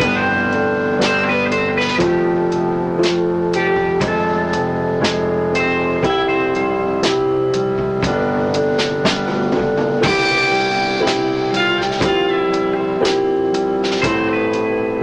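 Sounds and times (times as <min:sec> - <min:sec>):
drums keeping a steady beat: 0:00.0 - 0:15.0
guitar-led instrumental music: 0:00.0 - 0:15.0.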